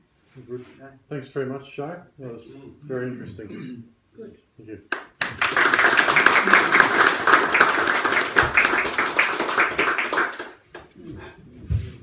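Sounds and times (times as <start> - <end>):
audience applauding: 4.9 - 10.9.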